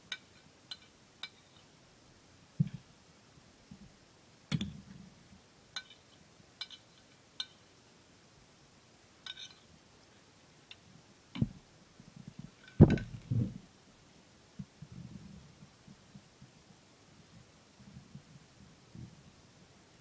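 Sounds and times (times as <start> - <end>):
cutlery clinking on a plate: 5.8 - 7.6, 9.2 - 9.7.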